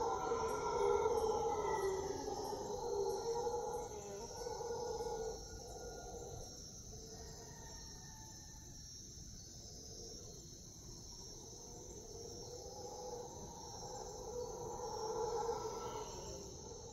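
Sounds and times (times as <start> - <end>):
howler monkeys roaring: 0.0 - 6.3, 12.6 - 16.9
night insects buzzing: 0.0 - 16.9.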